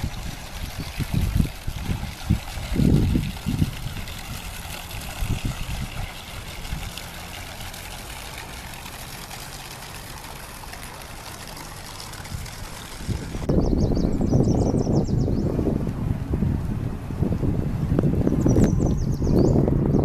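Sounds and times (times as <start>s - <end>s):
wind on microphone: 0.0s - 7.2s, 12.1s - 20.0s
running water: 0.0s - 20.0s.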